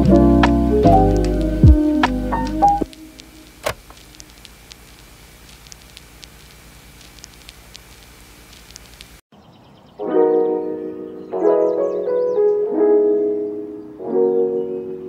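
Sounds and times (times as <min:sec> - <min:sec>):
lo-fi piano music: 0:00.0 - 0:04.1, 0:10.0 - 0:15.0
vinyl crackle with clicks: 0:00.1 - 0:09.2.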